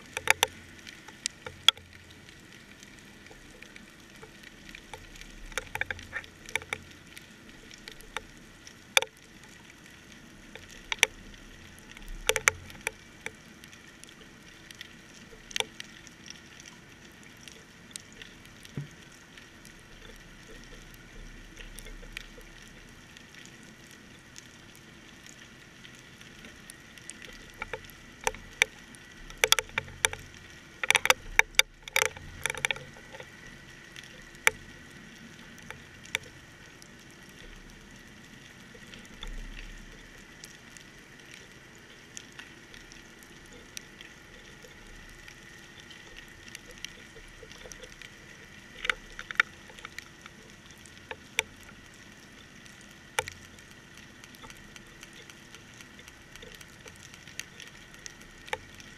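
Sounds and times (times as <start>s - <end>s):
sharp clicks and knocks: 0.1s - 1.9s, 4.9s - 6.9s, 11.9s - 13.4s, 27.3s - 30.2s, 30.8s - 33.4s.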